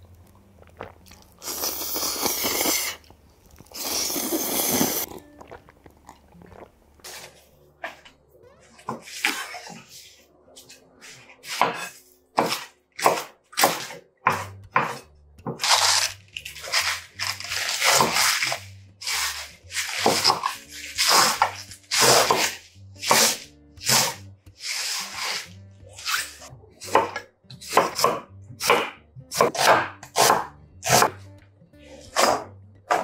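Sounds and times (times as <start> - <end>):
background music with bass: 14.2 - 33.0.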